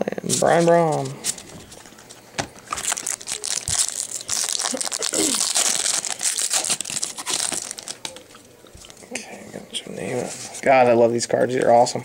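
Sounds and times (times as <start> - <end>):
foil wrapper tearing and crinkling: 0.4 - 8.2.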